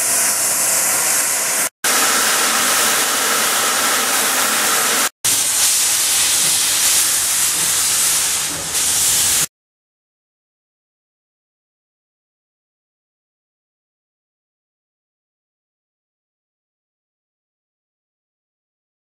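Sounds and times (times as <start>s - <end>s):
steam locomotive hissing: 0.0s - 9.5s.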